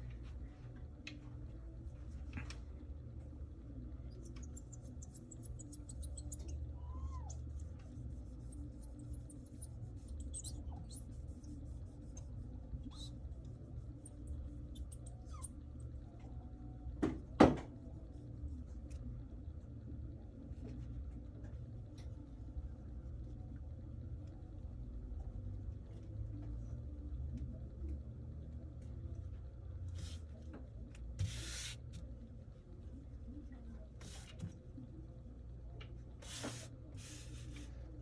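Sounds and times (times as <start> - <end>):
steady low hum: 0.0 - 38.0
cloth squeaking on glass screen: 4.2 - 7.7, 8.4 - 11.7.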